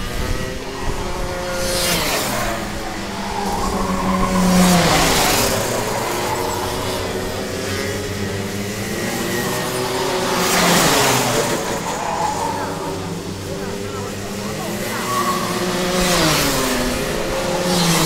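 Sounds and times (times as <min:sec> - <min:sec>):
kart engines buzzing past: 0:00.0 - 0:18.0.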